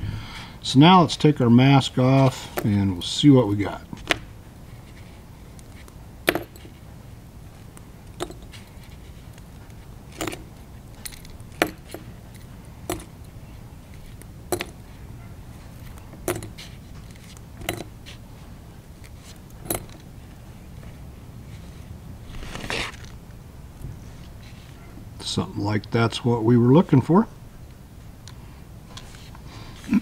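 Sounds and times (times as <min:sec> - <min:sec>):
metal clips clinking: 0:05.0 - 0:06.9, 0:07.6 - 0:14.9, 0:15.7 - 0:18.2, 0:19.0 - 0:20.1.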